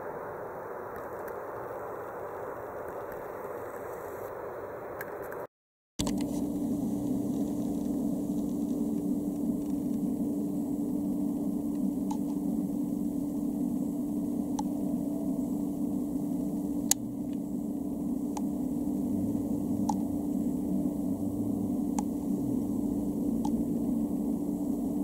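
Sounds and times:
steady low hum: 0:06.0 - 0:25.0.

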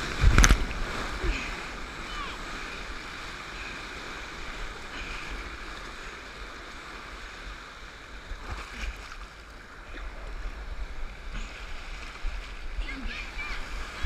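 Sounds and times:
surf rushing and fizzing: 0:00.0 - 0:14.0
small water splashes: 0:08.2 - 0:14.0.

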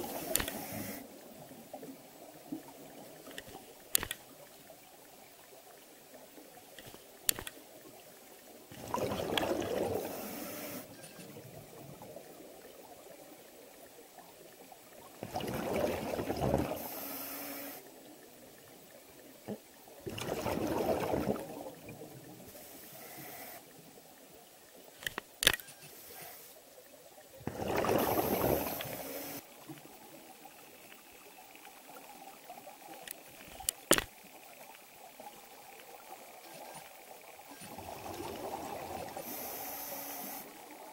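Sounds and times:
sharp clicks: 0:00.3 - 0:00.8, 0:03.3 - 0:04.2, 0:06.7 - 0:07.6, 0:25.0 - 0:25.8.

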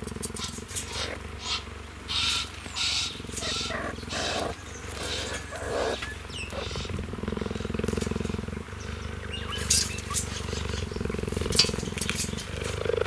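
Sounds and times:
cheetah purring: 0:00.0 - 0:13.0.

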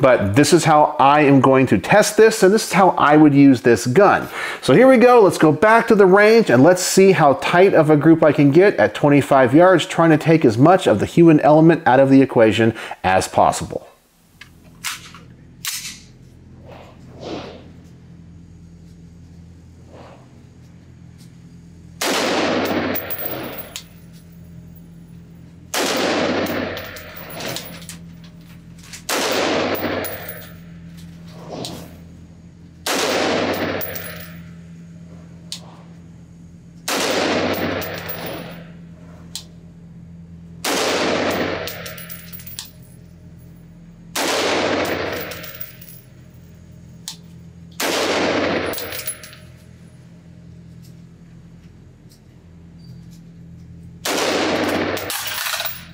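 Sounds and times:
gunshots echoing indoors: 0:22.0 - 0:23.8, 0:25.7 - 0:27.6, 0:29.1 - 0:30.5, 0:32.8 - 0:34.4, 0:36.9 - 0:38.6, 0:40.6 - 0:42.1, 0:44.2 - 0:45.6, 0:47.8 - 0:49.0, 0:54.0 - 0:55.6.

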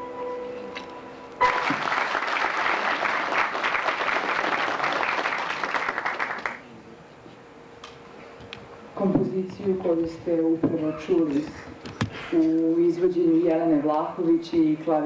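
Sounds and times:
audience applause: 0:01.4 - 0:06.7.

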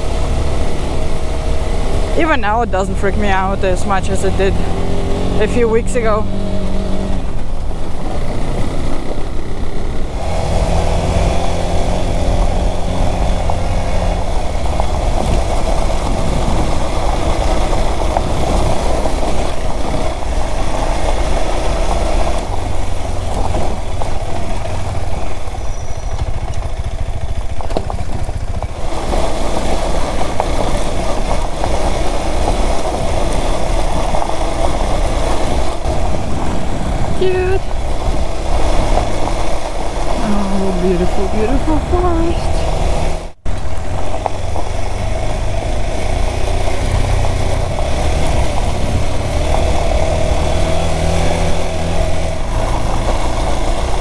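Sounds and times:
motorcycle engine running: 0:00.0 - 0:54.0
tyres on gravel: 0:00.0 - 0:54.0
wind noise on microphone: 0:04.0 - 0:27.0, 0:27.9 - 0:40.2.

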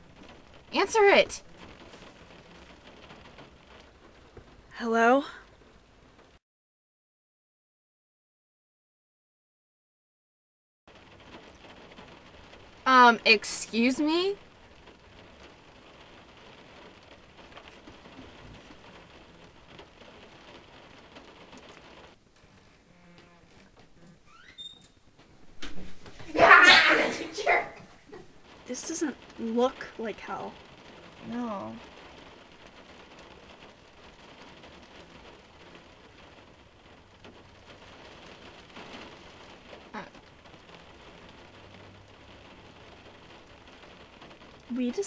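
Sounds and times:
light crackle: 0:00.0 - 0:06.4, 0:10.9 - 0:45.0
faint steady hiss: 0:10.9 - 0:45.0.

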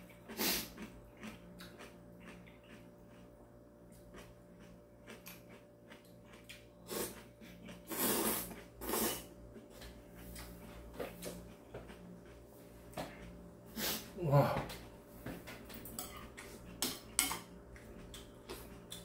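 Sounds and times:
soft chewing and mouth clicks: 0:00.0 - 0:13.5, 0:14.7 - 0:19.0
person slurping noodles: 0:00.3 - 0:00.8, 0:06.8 - 0:09.3, 0:13.7 - 0:14.2.

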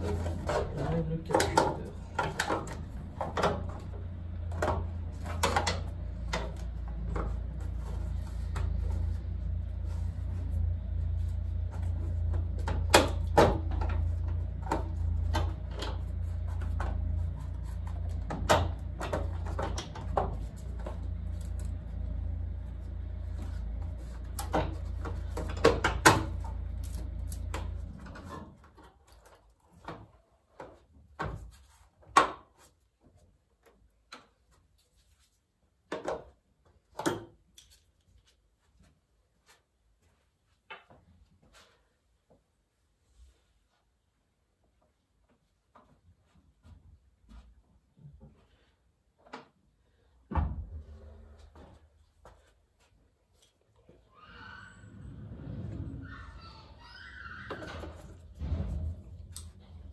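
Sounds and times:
tools and metal parts knocking: 0:00.0 - 0:09.0, 0:24.2 - 0:28.8
low steady hum: 0:00.0 - 0:29.2.

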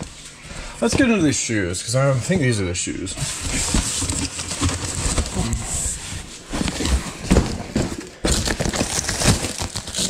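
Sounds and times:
cardboard box knocks and thumps: 0:06.6 - 0:09.8
packing tape ripping: 0:07.3 - 0:10.0.

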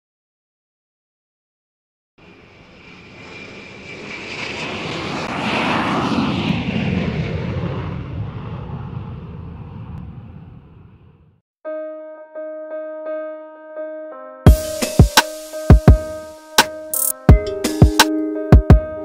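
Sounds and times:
aircraft engine fly-by: 0:02.2 - 0:11.4
high whine dropping in pitch: 0:02.2 - 0:11.4.

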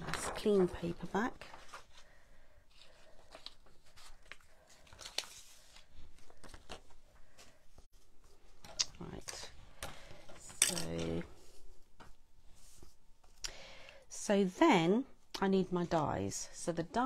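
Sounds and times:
paper rustling: 0:00.0 - 0:09.4.

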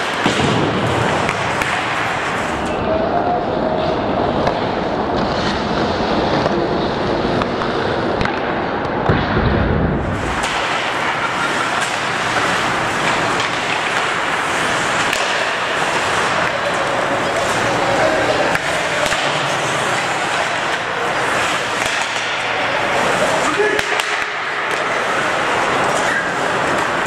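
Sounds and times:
skates scraping on ice: 0:00.0 - 0:02.8, 0:03.8 - 0:08.6, 0:10.0 - 0:27.0
sticks and puck clacking: 0:00.0 - 0:02.9, 0:03.8 - 0:09.4, 0:10.1 - 0:27.0.

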